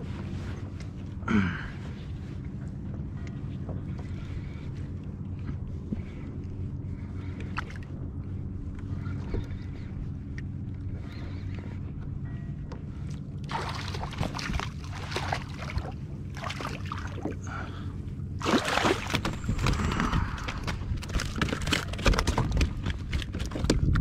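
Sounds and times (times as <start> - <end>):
fish splashing in water: 13.5 - 17.5, 18.4 - 22.2.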